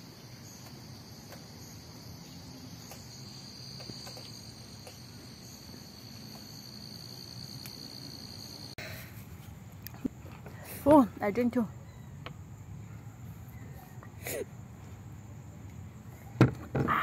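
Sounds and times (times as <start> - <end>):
lower insect trill: 0.0 - 8.8
crickets trilling: 0.0 - 9.0.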